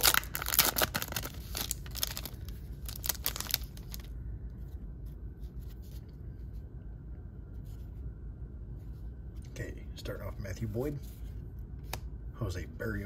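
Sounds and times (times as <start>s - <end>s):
foil wrapper crinkling: 0.0s - 4.1s.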